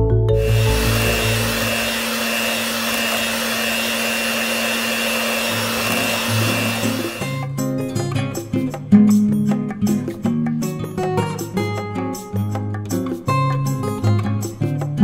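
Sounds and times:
electric hand mixer whining: 0:00.4 - 0:07.5
guitar music: 0:07.1 - 0:15.0.

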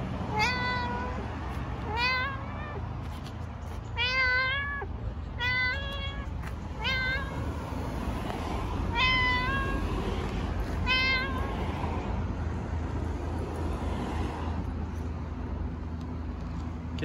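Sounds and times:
cat meowing: 0:00.3 - 0:07.7, 0:08.9 - 0:11.7.

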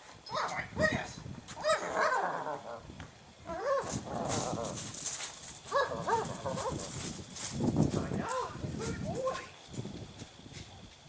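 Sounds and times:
dogs barking: 0:00.3 - 0:01.0, 0:01.6 - 0:02.8, 0:05.7 - 0:06.9, 0:08.2 - 0:09.4.

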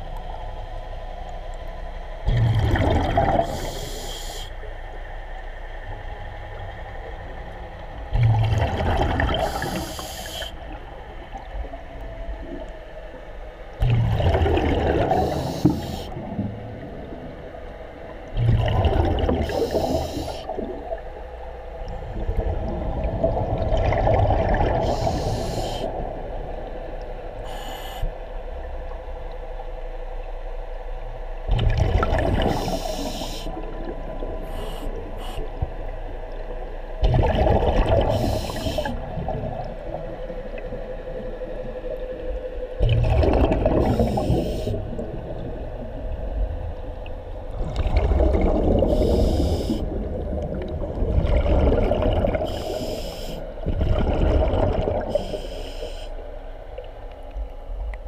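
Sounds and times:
faint steady hum: 0:00.0 - 0:58.0
bubbling exhalations underwater: 0:02.3 - 0:03.6, 0:08.1 - 0:09.8, 0:13.8 - 0:15.5, 0:18.3 - 0:20.0, 0:37.0 - 0:39.8, 0:42.8 - 0:45.7, 0:47.5 - 0:52.8, 0:53.6 - 0:55.3
regulator hiss: 0:03.5 - 0:04.6, 0:09.4 - 0:10.6, 0:15.1 - 0:16.2, 0:19.4 - 0:20.5, 0:24.8 - 0:26.0, 0:27.4 - 0:28.2, 0:32.5 - 0:33.6, 0:34.4 - 0:35.6, 0:38.1 - 0:39.0, 0:44.0 - 0:44.8, 0:48.9 - 0:49.9, 0:52.4 - 0:53.5, 0:55.1 - 0:56.2.

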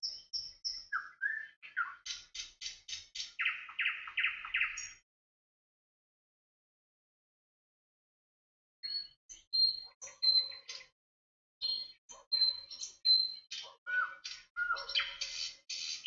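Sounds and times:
birds chirping and whistling: 0:00.0 - 0:05.0, 0:08.8 - 0:10.9, 0:11.6 - 0:16.0.

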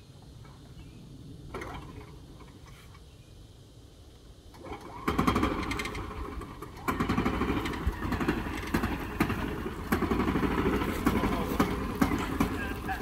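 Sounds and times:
golf cart engine running hard: 0:04.5 - 0:13.0.

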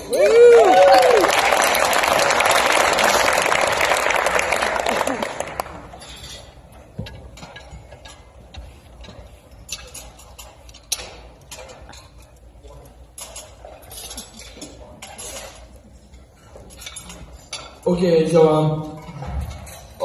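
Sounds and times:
cutlery and dishes clinking: 0:05.6 - 0:20.0.

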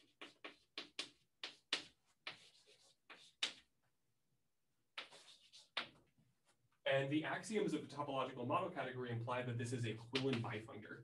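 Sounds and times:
chalk writing on blackboard: 0:00.0 - 0:03.7, 0:05.0 - 0:06.0.

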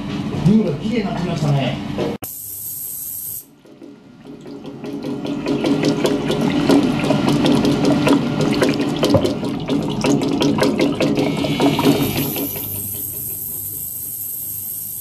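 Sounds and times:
high hiss: 0:02.2 - 0:03.5, 0:11.7 - 0:15.0
ultrasonic cleaner water churning: 0:03.5 - 0:13.3.

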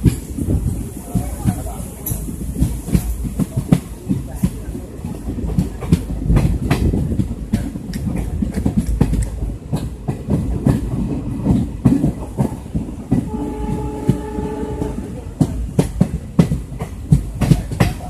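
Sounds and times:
train wheels clattering on track: 0:00.0 - 0:18.0
train horn: 0:13.1 - 0:15.4.

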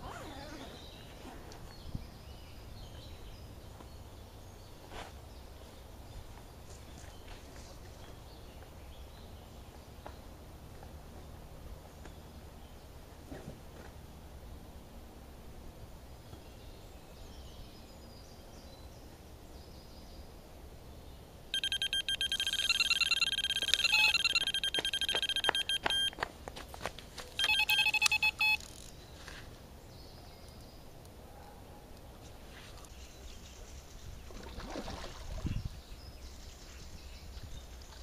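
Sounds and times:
bite alarm beeping: 0:21.6 - 0:26.2, 0:27.4 - 0:28.7
bite alarm clicks: 0:21.6 - 0:26.2, 0:27.4 - 0:28.9.

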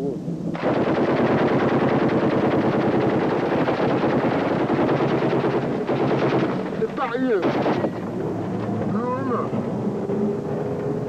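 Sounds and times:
automatic gunfire: 0:00.5 - 0:08.0.

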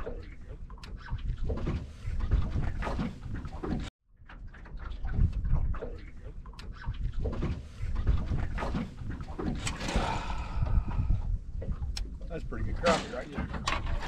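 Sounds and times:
wind buffeting microphone: 0:04.9 - 0:05.9, 0:06.8 - 0:14.0.

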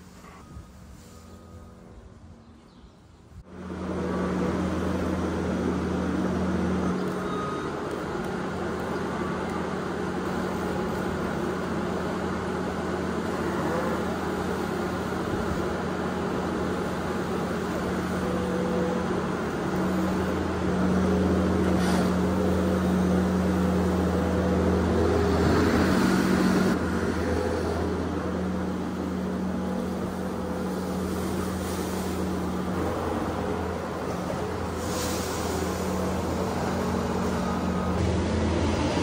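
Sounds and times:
diesel engine running: 0:03.4 - 0:39.0.

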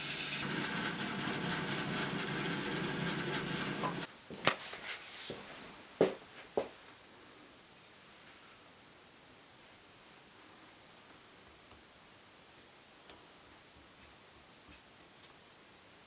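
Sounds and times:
bandsaw cutting wood: 0:00.0 - 0:04.1.

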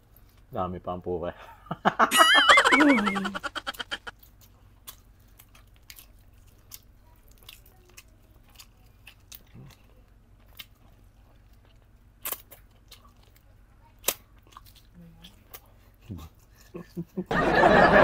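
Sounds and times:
person chewing: 0:03.0 - 0:17.2.

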